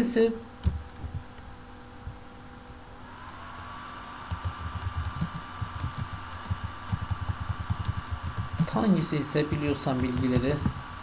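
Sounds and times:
faint steady whine: 0:00.0 - 0:11.0
typing on keyboard: 0:00.6 - 0:01.2, 0:04.3 - 0:08.8, 0:09.7 - 0:10.8.

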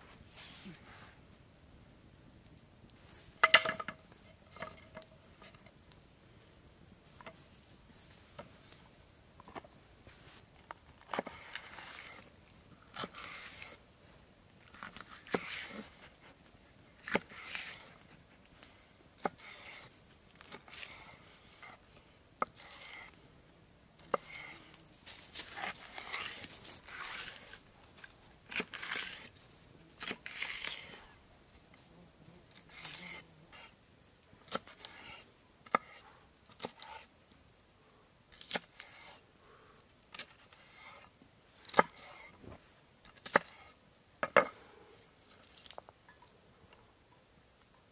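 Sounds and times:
tearing and scraping strokes: 0:10.1 - 0:12.3, 0:12.9 - 0:13.8, 0:14.7 - 0:16.4, 0:17.0 - 0:21.8, 0:22.4 - 0:23.2, 0:24.0 - 0:31.2, 0:32.5 - 0:33.8, 0:34.5 - 0:37.1, 0:38.3 - 0:39.2, 0:40.1 - 0:42.5, 0:43.2 - 0:43.8.

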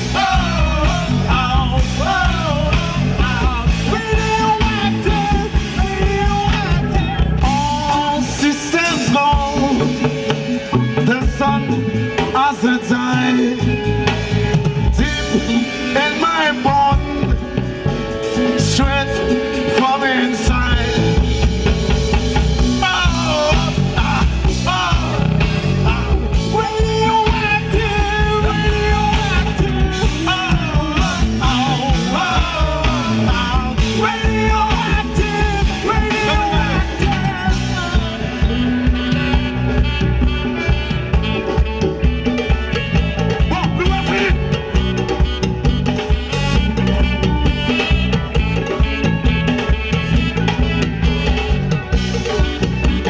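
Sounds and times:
person singing: 0:00.0 - 0:21.5, 0:22.6 - 0:39.8
bass guitar: 0:00.0 - 0:53.0
congas: 0:00.0 - 0:53.0
drum kit: 0:00.0 - 0:53.0
saxophone: 0:00.0 - 0:53.0.

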